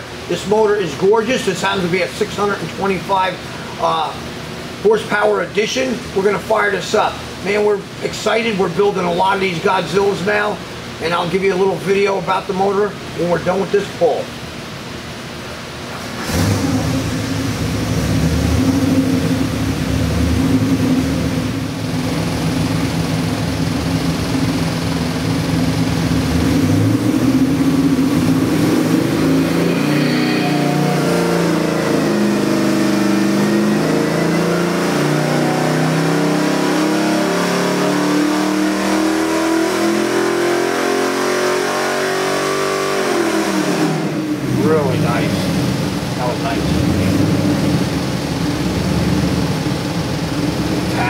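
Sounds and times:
engine revving on dyno: 15.9s - 51.0s.

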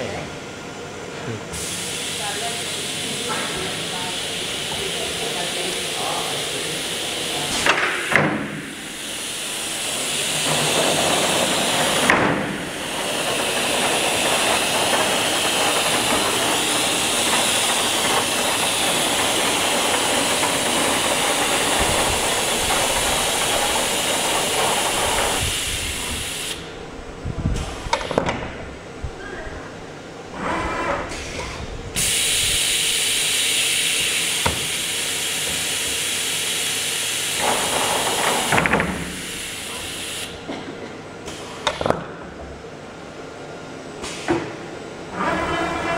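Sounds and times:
loud air hiss: 1.5s - 26.8s, 32.0s - 40.4s.

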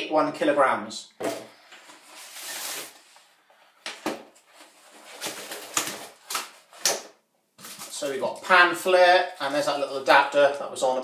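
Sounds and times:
packaging rustling: 1.8s - 3.2s, 4.3s - 6.9s, 7.6s - 8.1s.

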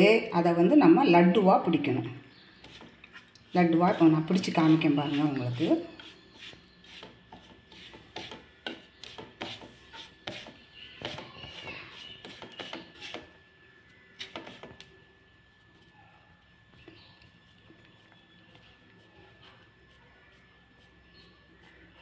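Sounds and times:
fingers rubbing crumbly mixture: 2.3s - 22.0s
scrapes and taps against pan: 7.0s - 13.3s.

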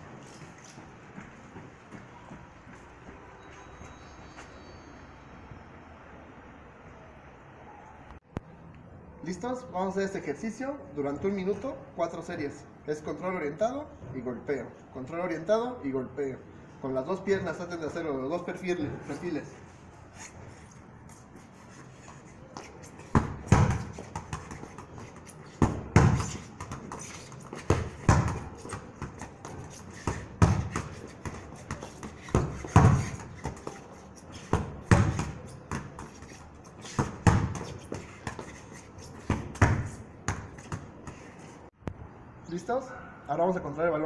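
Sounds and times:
football thudding against wall: 23.2s - 24.4s, 25.6s - 26.9s.

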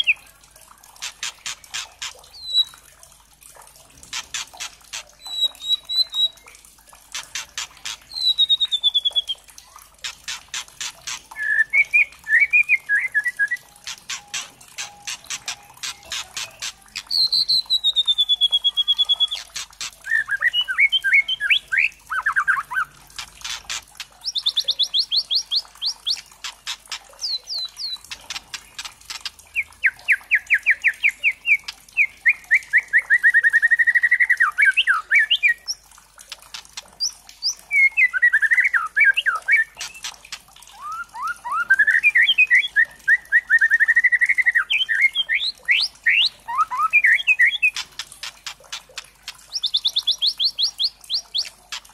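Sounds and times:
bird sharp clicking notes: 0.9s - 2.8s, 4.0s - 33.6s, 34.6s - 42.6s, 43.5s - 51.9s
bird singing whistled trills: 1.4s - 2.8s, 5.2s - 6.6s, 7.8s - 9.5s, 11.3s - 22.9s, 27.2s - 35.8s, 37.0s - 40.1s, 40.7s - 47.8s, 49.5s - 51.5s.

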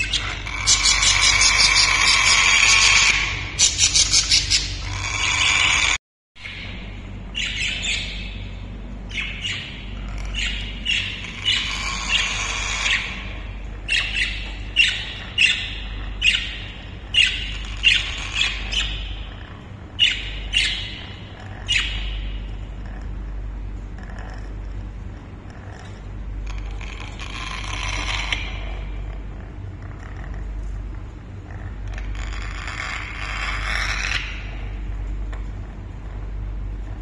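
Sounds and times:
parrot squawking: 0.0s - 8.4s, 9.1s - 23.0s, 26.5s - 29.0s, 31.9s - 34.7s.

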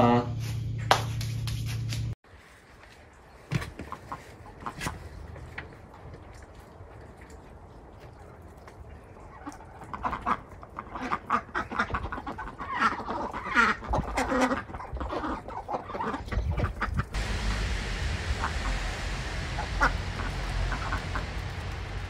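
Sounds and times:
ducks quacking: 9.4s - 17.1s
low rumble: 17.0s - 22.0s
steady hiss: 17.2s - 22.0s.

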